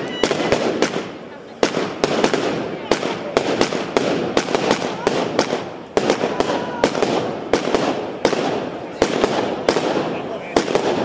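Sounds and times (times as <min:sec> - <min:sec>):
firecrackers crackling: 0:00.0 - 0:11.0
firework bangs: 0:00.0 - 0:11.0.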